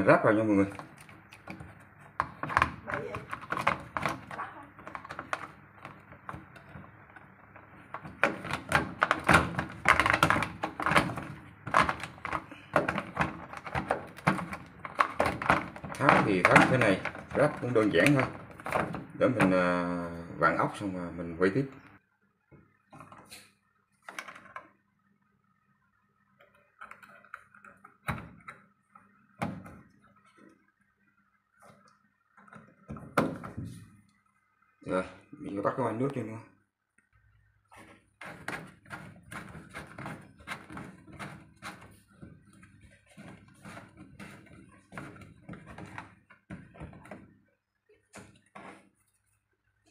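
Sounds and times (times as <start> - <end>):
hard plastic clicking and knocking: 0.7 - 19.6, 37.8 - 47.5.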